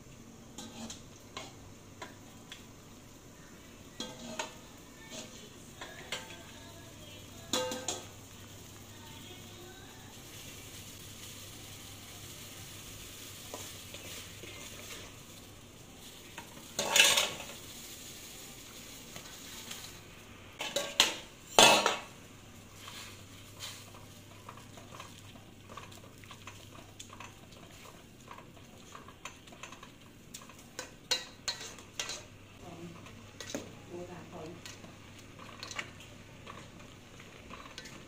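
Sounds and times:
spoon scraping cooking pot: 0.6 - 2.1, 4.0 - 6.4, 22.8 - 32.3.

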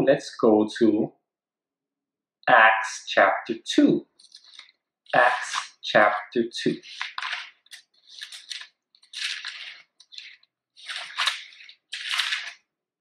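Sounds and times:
book pages turning: 4.1 - 12.7.

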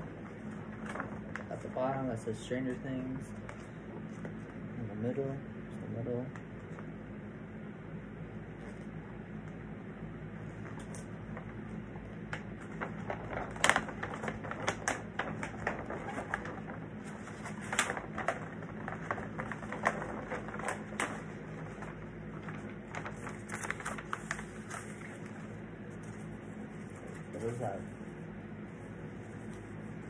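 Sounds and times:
steady low hum: 0.0 - 30.0
wrapping crinkling: 0.4 - 2.1, 12.3 - 30.0.

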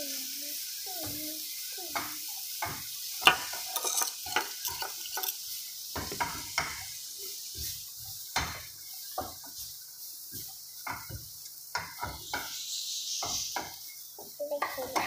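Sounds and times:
faint steady hiss: 0.0 - 15.0
wooden spatula scraping frying pan: 2.6 - 15.0
spatula knocking against pan: 8.3 - 9.6, 10.4 - 12.6.

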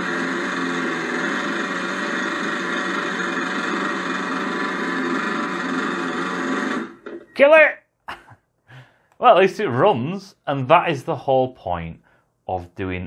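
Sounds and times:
small engine running steadily: 0.0 - 7.2.

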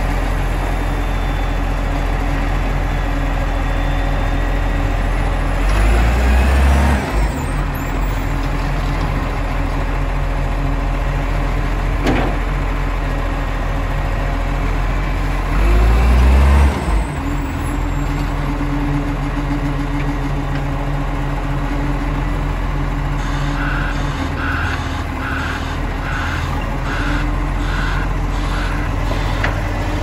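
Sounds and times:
short beeps: 0.7 - 1.9, 2.9 - 4.9, 23.2 - 28.8
diesel engine idling: 17.0 - 30.0.

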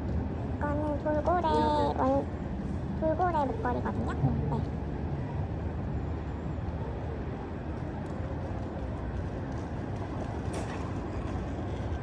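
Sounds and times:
low outdoor background rumble: 0.0 - 12.0.

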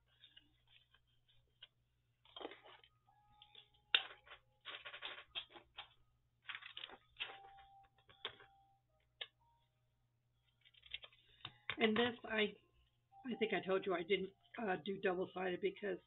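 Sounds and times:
paper rustling: 0.0 - 8.4, 10.5 - 11.4.

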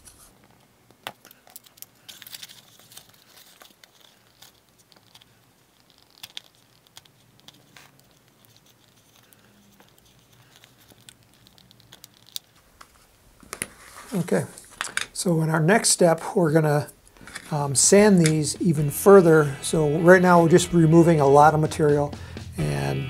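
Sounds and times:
plastic crinkling: 0.0 - 15.2.

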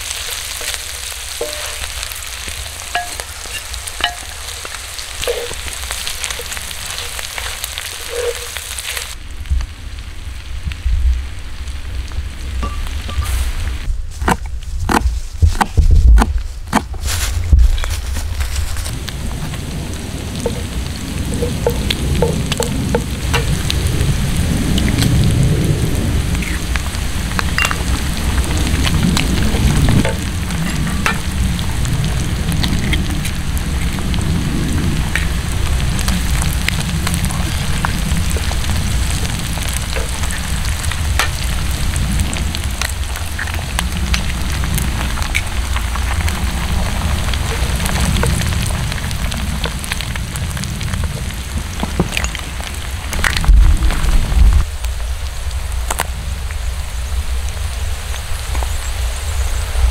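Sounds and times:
food sizzling in a skillet: 0.0 - 9.2, 12.6 - 13.9, 26.2 - 50.2
wooden spatula scraping pan: 0.0 - 9.2
low rumble: 0.0 - 55.4.

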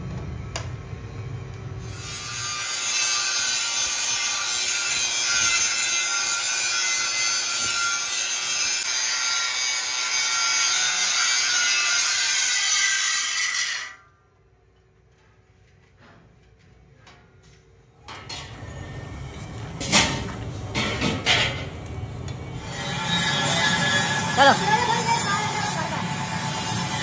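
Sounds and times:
angle grinder grinding steel: 1.8 - 14.0, 22.6 - 27.0.

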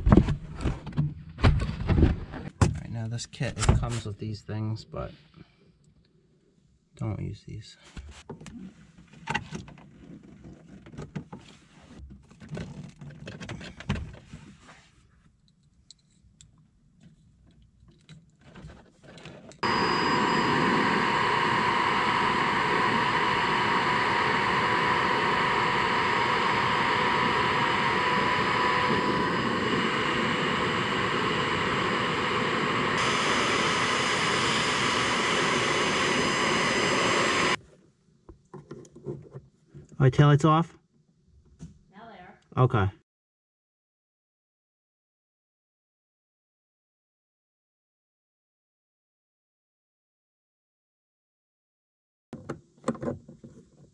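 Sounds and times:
heat gun blowing: 19.6 - 37.6.

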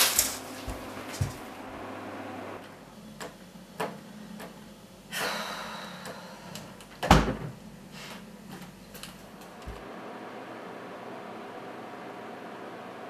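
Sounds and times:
door shutting with thud: 7.0 - 7.6.

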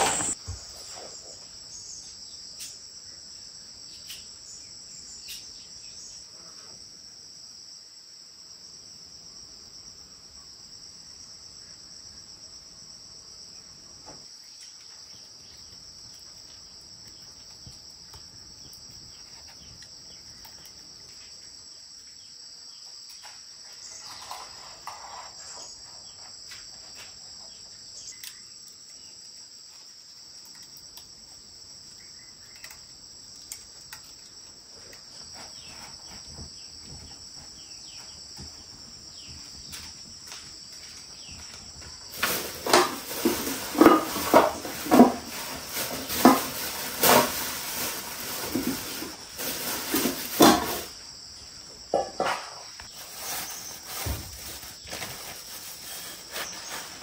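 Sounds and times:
insects chirring: 0.0 - 57.0
sharp knocks and clatter: 42.2 - 50.9.

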